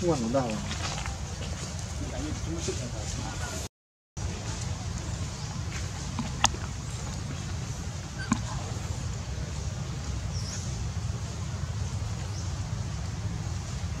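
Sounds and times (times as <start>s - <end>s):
low outdoor background rumble: 4.2s - 14.0s.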